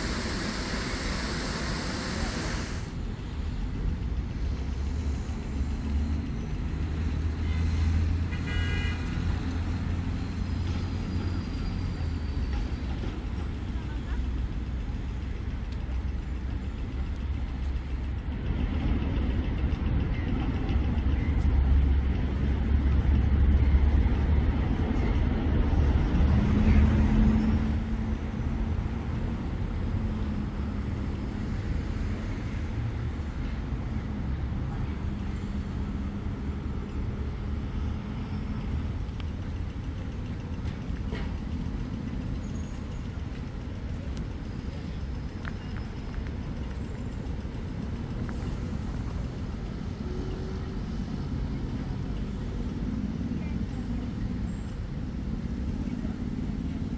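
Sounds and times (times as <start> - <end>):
engine hum: 0.0 - 8.4
heavy truck engine rumble: 0.0 - 56.9.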